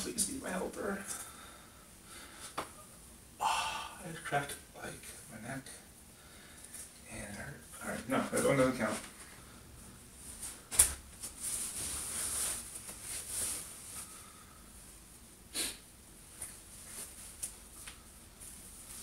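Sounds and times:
clothing rustling: 7.8 - 15.3, 16.2 - 19.0.

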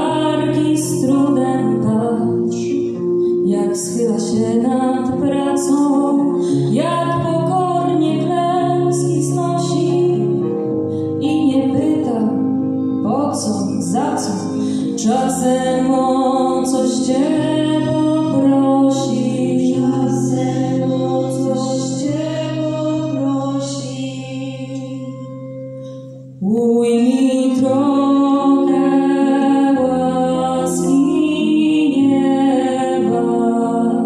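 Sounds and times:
acoustic guitar: 0.0 - 34.0
group of people singing: 15.0 - 25.1, 26.8 - 34.0.

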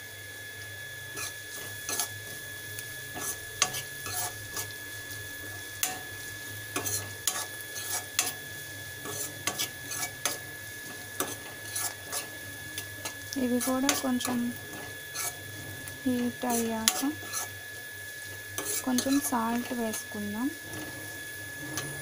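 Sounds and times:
faint frying sizzle: 0.0 - 22.0
metal spatula scraping steel pan: 1.2 - 2.1, 3.1 - 4.7, 5.8 - 8.4, 9.0 - 17.6, 18.6 - 19.7.

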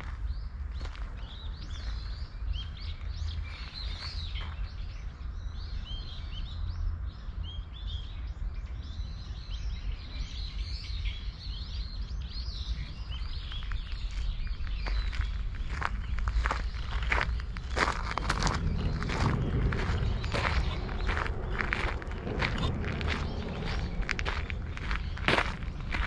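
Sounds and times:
small birds chirping: 0.0 - 26.0
low rumble: 12.9 - 26.0.

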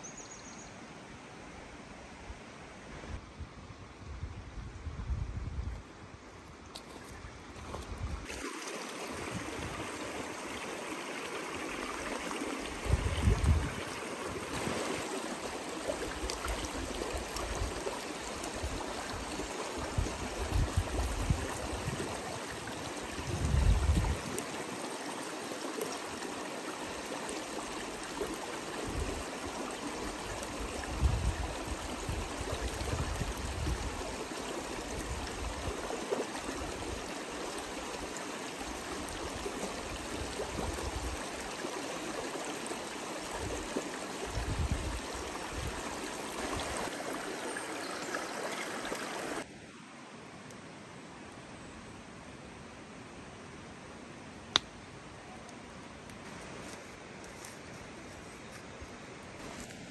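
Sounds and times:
stream rushing over stones: 6.8 - 49.5.

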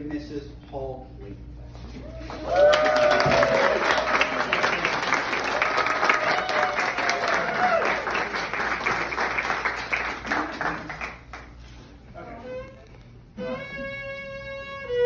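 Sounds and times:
crowd applauding: 2.2 - 11.6.

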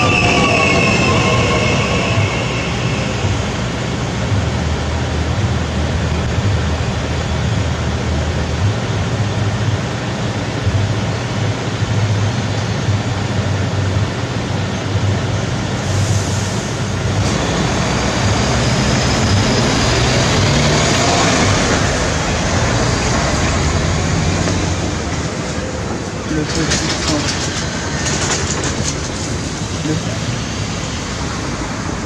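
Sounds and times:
car and lorry engines: 0.0 - 32.0.

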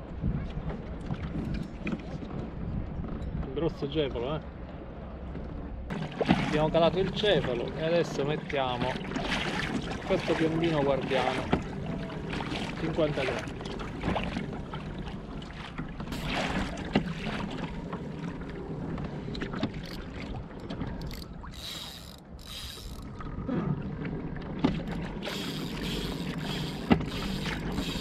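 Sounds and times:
water lapping against kayak hull: 0.0 - 3.5, 4.4 - 28.0
gear knocking on kayak: 24.6 - 28.0.

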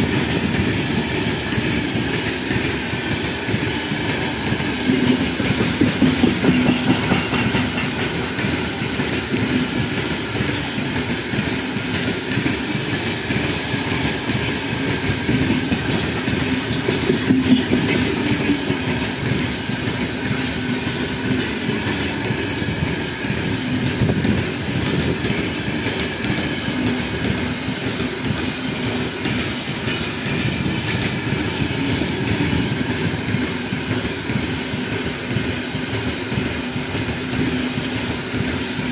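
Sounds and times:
freight train wheels rumbling: 0.0 - 38.9
wheels clicking over rail joints: 0.0 - 38.9.

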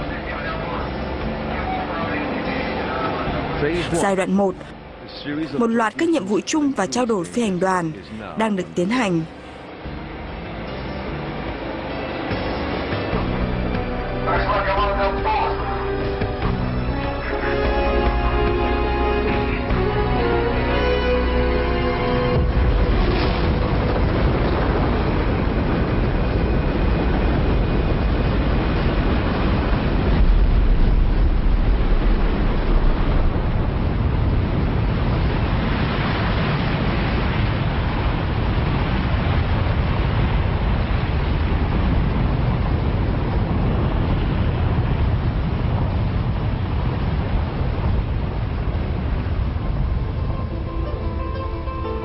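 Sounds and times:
rocket launch rumble: 22.4 - 51.3.

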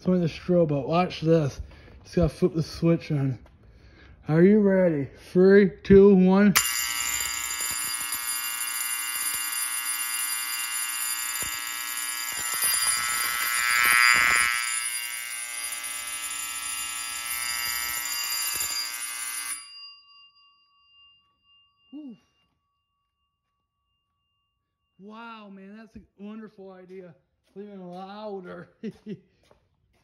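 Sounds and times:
fire alarm bells ringing: 6.6 - 25.7
faint bell ringing: 6.6 - 26.5.

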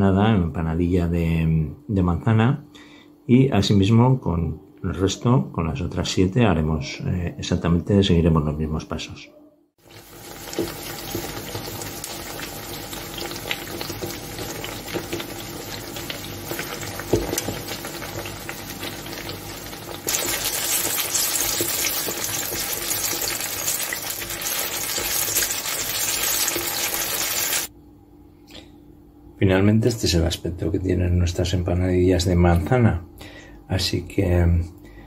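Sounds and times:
pastry sizzling in hot oil: 9.8 - 27.7.

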